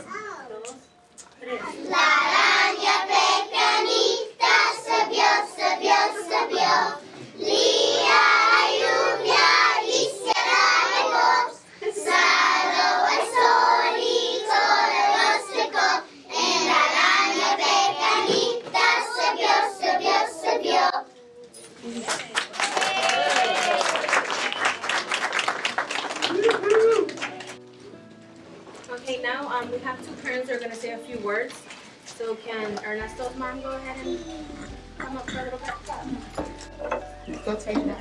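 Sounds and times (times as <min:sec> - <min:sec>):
young children singing in unison: 0:01.8 - 0:21.2.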